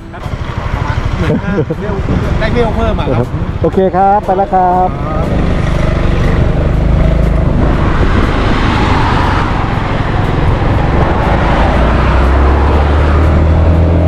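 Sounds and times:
road noise: 0:00.0 - 0:14.0
scooter engine humming: 0:00.0 - 0:14.0
wind noise: 0:05.8 - 0:14.0.

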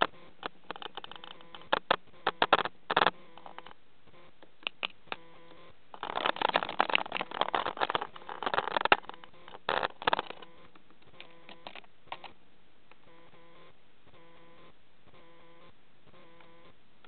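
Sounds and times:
bird claws scratching: 0:06.0 - 0:10.5.

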